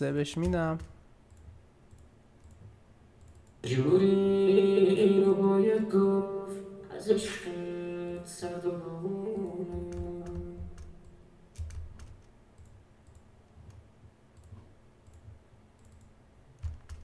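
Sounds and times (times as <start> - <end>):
computer mouse clicks: 0.4 - 3.6, 9.4 - 17.0.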